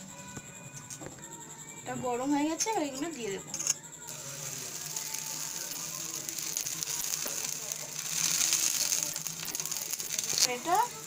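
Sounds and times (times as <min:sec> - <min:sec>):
dough sizzling in a frying pan: 0:04.1 - 0:11.0.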